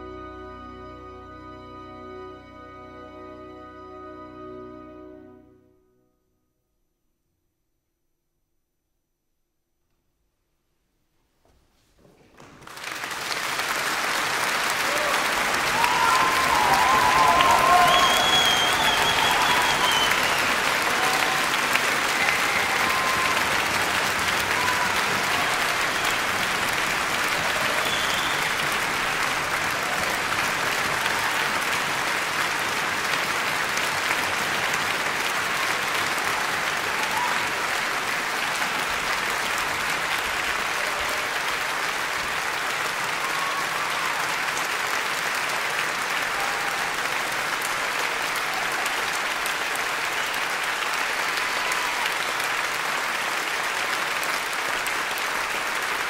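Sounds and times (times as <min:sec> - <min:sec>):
audience applauding: 0:12.3 - 0:56.0.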